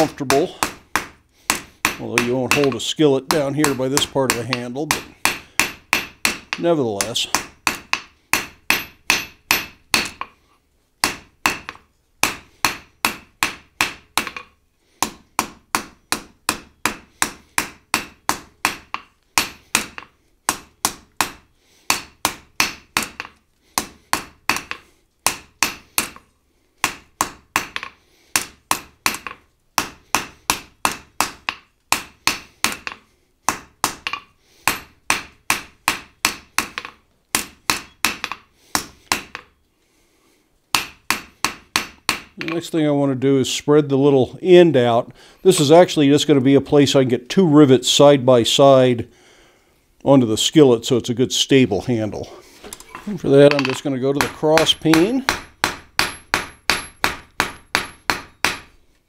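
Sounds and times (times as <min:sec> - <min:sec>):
hammer striking hot iron on anvil: 0:00.1 - 0:06.6, 0:07.3 - 0:10.3, 0:11.0 - 0:26.2, 0:26.8 - 0:39.5, 0:40.8 - 0:42.6, 0:53.5 - 0:58.7.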